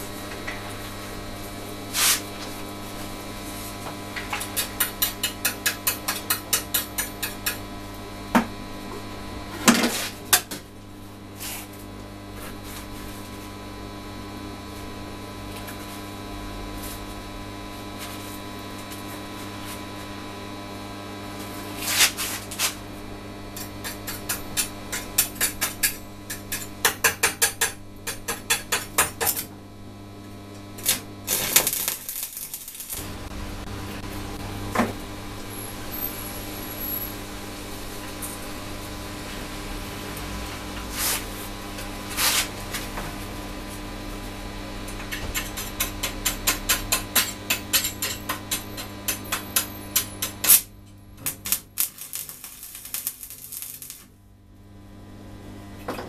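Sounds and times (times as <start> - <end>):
electrical hum: 0.0 - 56.0.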